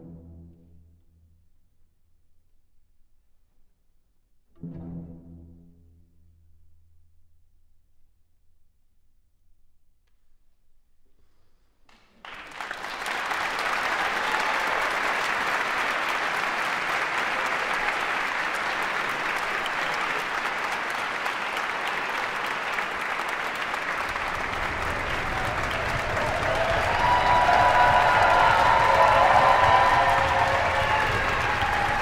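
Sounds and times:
audience applause: 0:12.2 - 0:32.0
audience cheering: 0:12.2 - 0:32.0.

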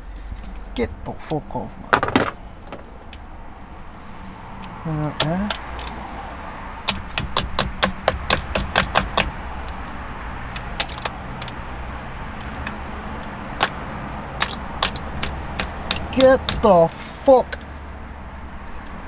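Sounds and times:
plastic clips clicking: 0:14.4 - 0:16.7.

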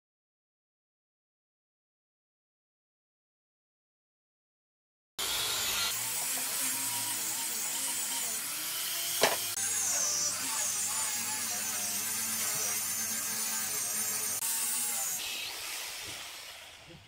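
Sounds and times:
angle grinder sanding wood: 0:05.2 - 0:17.0.

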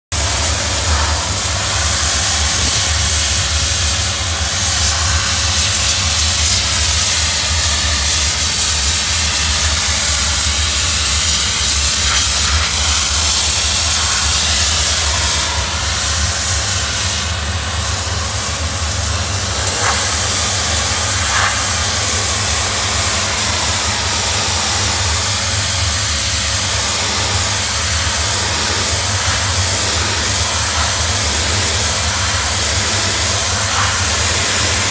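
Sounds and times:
steam lance hissing: 0:00.2 - 0:34.9
low hum: 0:12.5 - 0:34.9.

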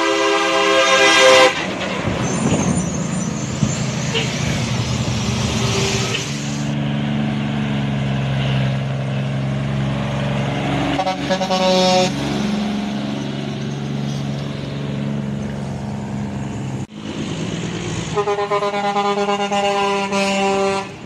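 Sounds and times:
air horn blast: 0:00.0 - 0:01.6, 0:10.9 - 0:12.2, 0:18.1 - 0:21.0
truck diesel engine running: 0:00.8 - 0:21.0.

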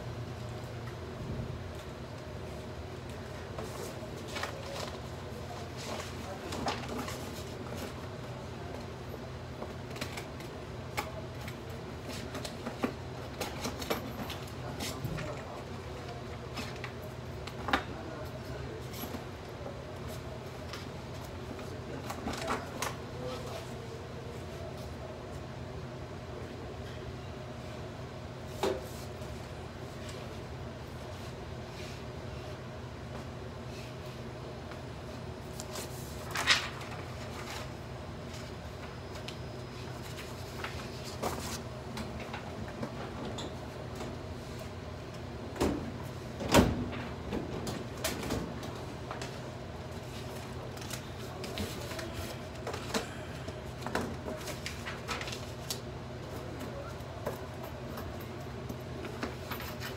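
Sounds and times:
low room hum: 0:00.0 - 0:59.9
paper rustling: 0:35.5 - 0:37.8, 0:54.3 - 0:55.8.

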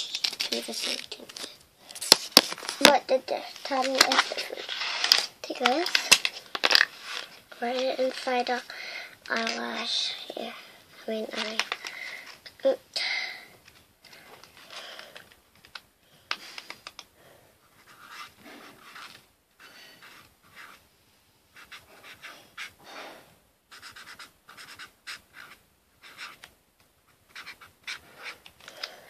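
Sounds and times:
marker scratching on paper: 0:03.6 - 0:05.7, 0:17.7 - 0:20.8, 0:21.5 - 0:22.8, 0:23.7 - 0:26.5, 0:27.1 - 0:28.4.

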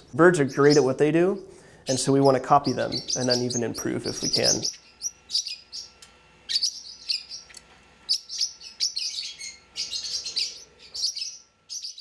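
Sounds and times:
small bird chirping: 0:02.6 - 0:12.0.

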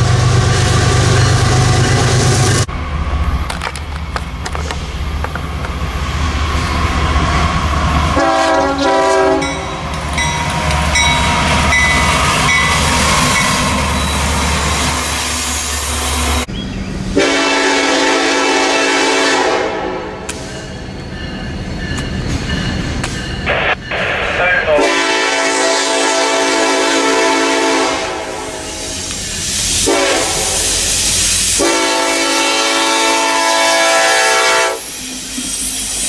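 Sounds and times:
passing train rumble: 0:00.0 - 0:36.0
locomotive horn chords: 0:08.1 - 0:09.8, 0:17.2 - 0:20.3, 0:24.8 - 0:28.9, 0:29.8 - 0:30.7, 0:31.6 - 0:34.9.

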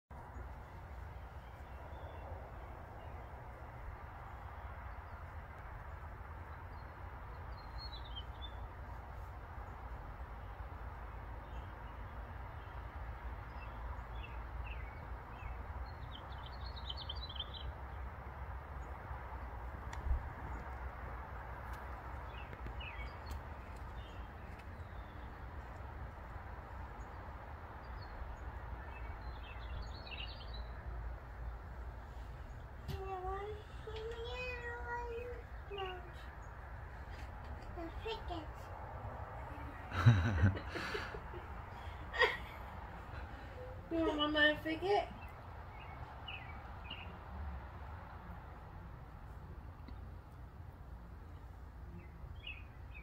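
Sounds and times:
bird chirping: 0:05.9 - 0:08.7, 0:13.4 - 0:17.8, 0:22.2 - 0:25.9, 0:26.9 - 0:38.4, 0:52.0 - 0:53.0.

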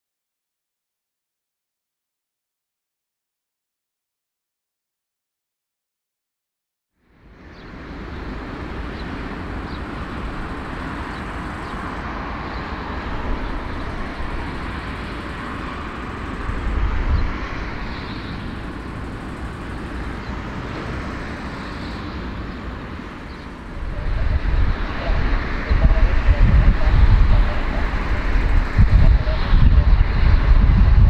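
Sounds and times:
jet engines rumbling and hissing: 0:07.0 - 0:31.0.

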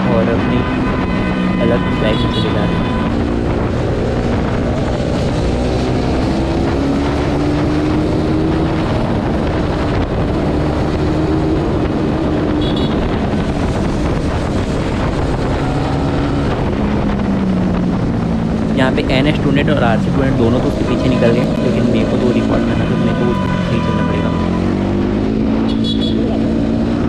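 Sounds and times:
wind buffeting microphone: 0:02.6 - 0:23.6.

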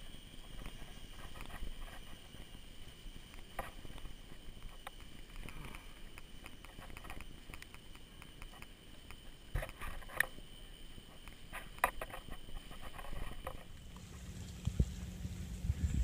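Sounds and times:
low rumble of vehicle ride: 0:12.7 - 0:16.0.

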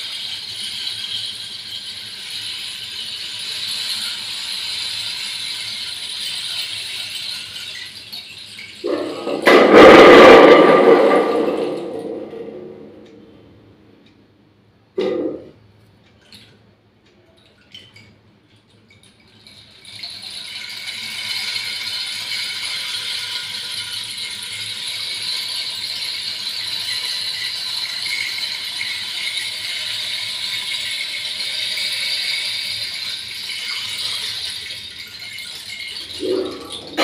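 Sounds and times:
rainstick rattle: 0:00.0 - 0:09.6, 0:17.5 - 0:37.0.

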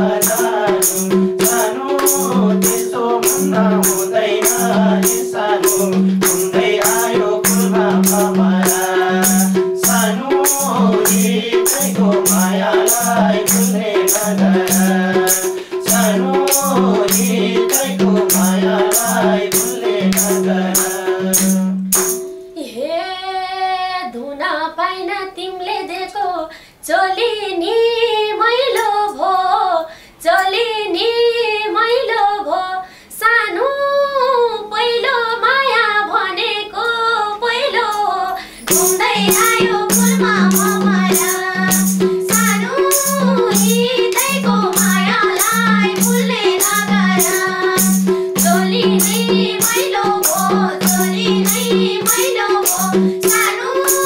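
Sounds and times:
women singing folk song: 0:00.0 - 0:21.8, 0:22.6 - 0:54.0
hand drum beat: 0:00.0 - 0:22.4, 0:38.6 - 0:54.0
jingling percussion: 0:00.0 - 0:22.6, 0:37.9 - 0:54.0.

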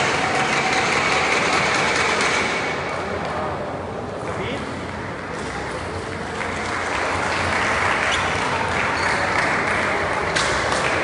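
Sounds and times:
spectators applauding: 0:06.3 - 0:11.0.

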